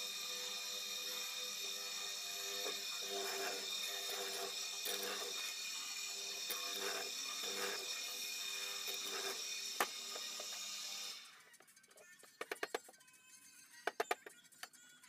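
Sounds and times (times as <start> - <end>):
mortiser motor whine: 0.0 - 11.2
chisel cutting into wood: 1.9 - 5.4, 6.3 - 10.6.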